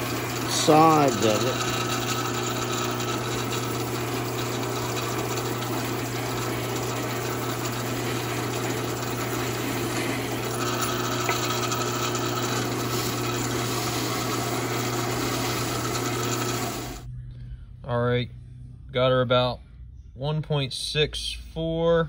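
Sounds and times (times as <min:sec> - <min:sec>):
sanding drum grinding metal: 0:00.0 - 0:17.0
drill press motor hum: 0:00.0 - 0:17.1.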